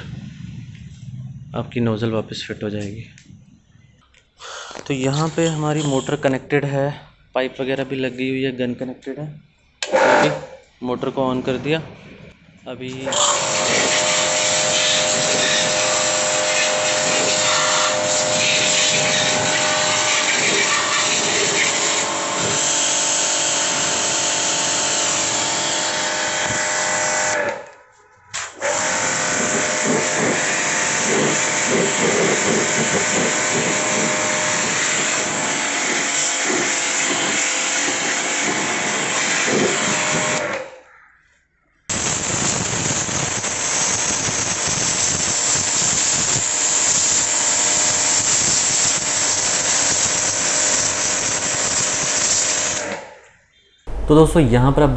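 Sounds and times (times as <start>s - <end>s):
pressure washer motor and pump hum: 13.0s - 27.6s, 28.6s - 40.6s, 42.0s - 53.0s
water jet hissing on surfaces: 13.1s - 22.7s.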